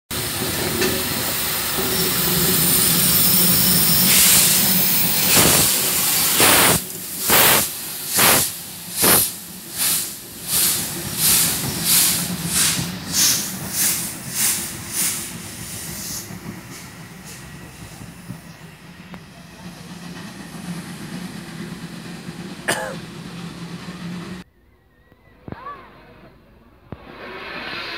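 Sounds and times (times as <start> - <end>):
steam hissing: 0.1 - 24.4, 27.0 - 27.9
steam locomotive exhaust chuffs: 0.1 - 24.4.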